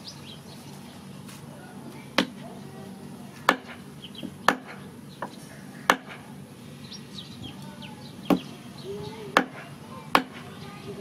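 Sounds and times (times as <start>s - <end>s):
cleaver chopping on wooden block: 3.5s - 4.8s, 5.9s - 6.2s, 9.4s - 9.6s, 10.2s - 10.4s.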